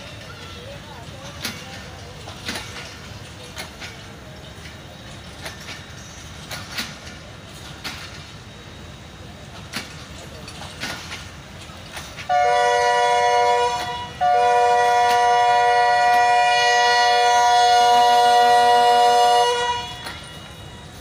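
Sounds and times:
locomotive air horn: 12.3s - 20.6s.

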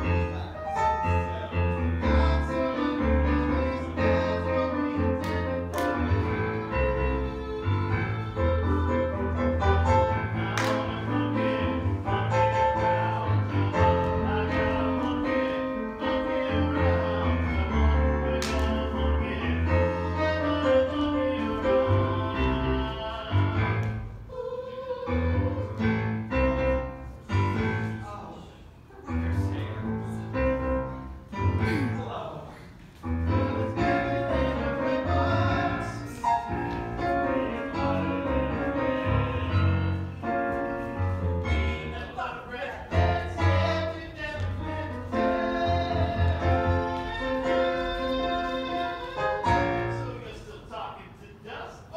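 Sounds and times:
piano accompaniment music: 0.0s - 50.7s
group of voices singing: 1.5s - 6.5s, 9.7s - 26.4s, 33.3s - 40.4s, 42.8s - 50.2s.

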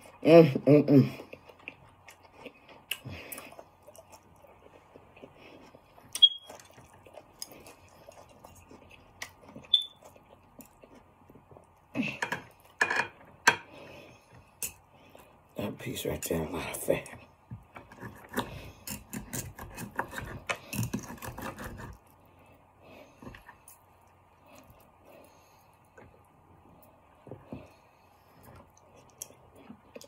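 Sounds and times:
chewing and mouth noises: 1.2s - 11.9s, 23.0s - 30.0s.

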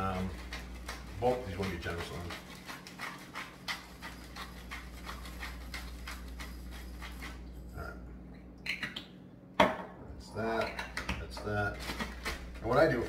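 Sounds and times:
pepper mill grinding: 0.0s - 7.5s, 11.7s - 13.0s.

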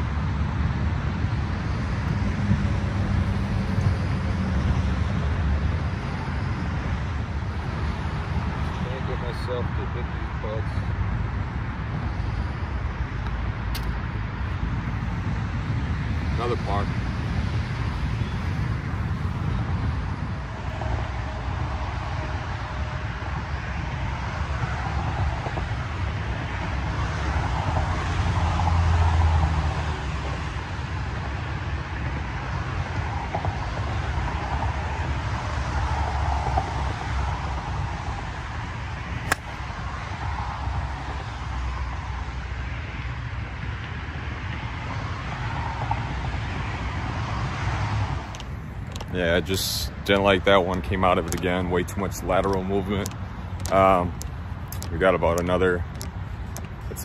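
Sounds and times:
distant road traffic hum: 0.0s - 57.0s
wind buffeting microphone: 0.0s - 57.0s
sharp click: 13.7s - 14.0s.

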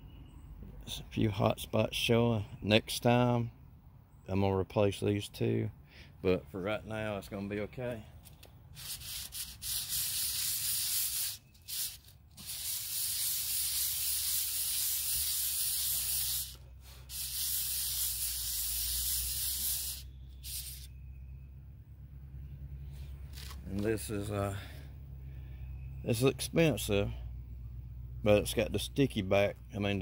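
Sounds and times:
metal plate scraping on sandpaper: 8.7s - 20.9s.

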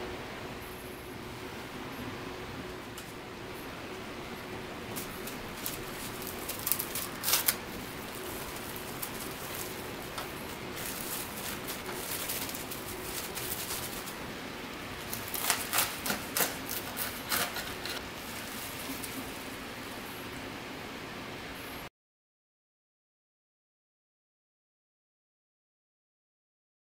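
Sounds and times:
cling wrap crinkling: 4.4s - 19.9s.

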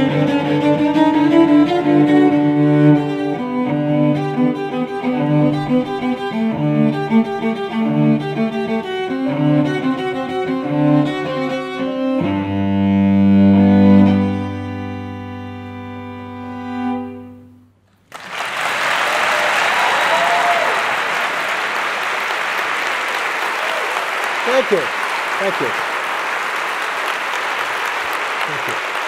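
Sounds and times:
bowed cello: 0.0s - 17.7s
audience applause: 17.9s - 29.0s.

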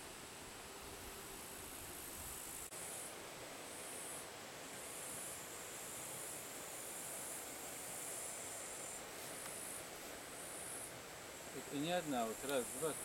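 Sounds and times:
steady soft hiss: 0.0s - 13.0s
insect chirring in pulses: 1.5s - 13.0s.

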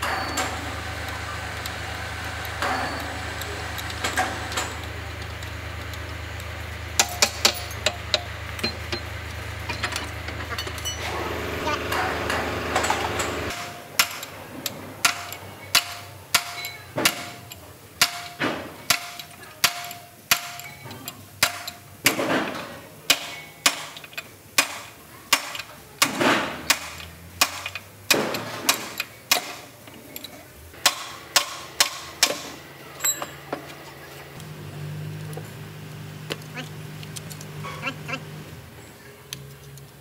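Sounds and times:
hammer striking steel: 0.0s - 5.0s, 7.0s - 9.1s, 11.8s - 14.4s, 15.0s - 29.7s, 30.8s - 33.4s.

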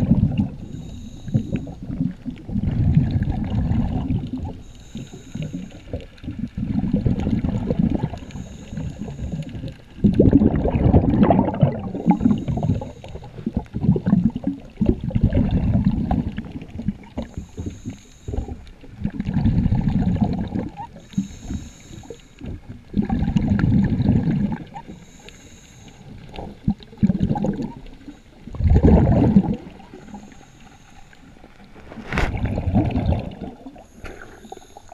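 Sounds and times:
underwater bubbles bursting: 0.0s - 21.6s, 22.4s - 25.1s, 26.0s - 30.4s, 31.6s - 34.9s
faint regulator hiss: 0.4s - 2.4s, 4.2s - 6.8s, 8.0s - 10.1s, 11.8s - 13.8s, 16.3s - 19.0s, 20.7s - 22.9s, 24.6s - 26.9s, 27.6s - 28.6s, 29.5s - 32.2s, 33.5s - 34.9s.

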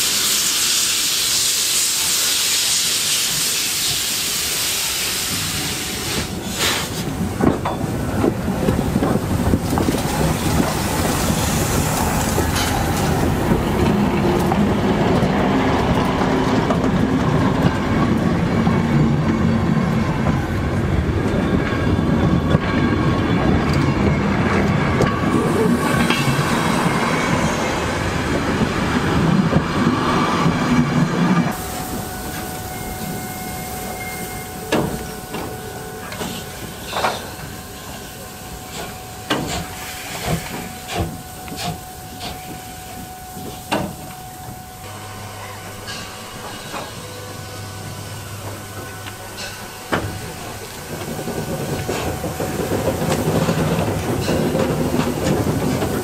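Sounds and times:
loud steam hiss: 0.0s - 14.2s, 25.2s - 30.6s, 31.2s - 44.2s
train rumbling along track: 0.0s - 56.0s
wheels clanking on rail joints: 5.3s - 56.0s.

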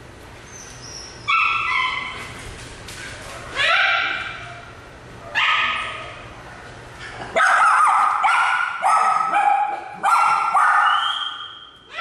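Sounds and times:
dog yelping: 0.8s - 2.3s, 3.6s - 4.6s, 7.4s - 12.0s.

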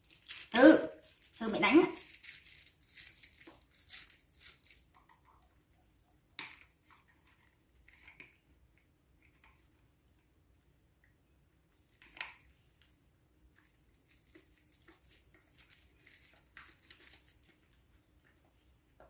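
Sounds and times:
faint rustling handling noises: 11.7s - 19.0s.

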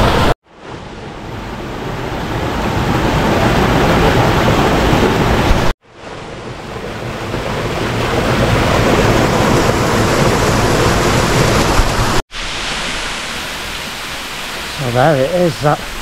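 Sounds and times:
waterfall splashing into pool: 7.4s - 16.0s.

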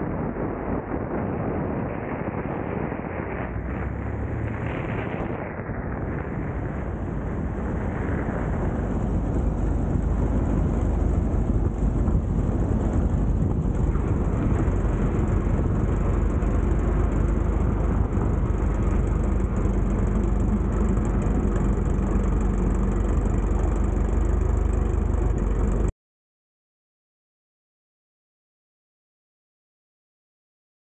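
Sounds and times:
small plane engine rumble: 0.0s - 25.9s
wind rush on microphone: 0.0s - 25.9s.

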